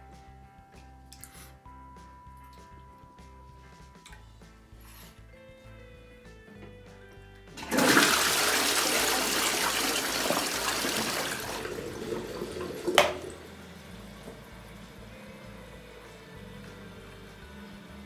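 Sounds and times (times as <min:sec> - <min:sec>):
toilet flushing: 0:07.6 - 0:16.1.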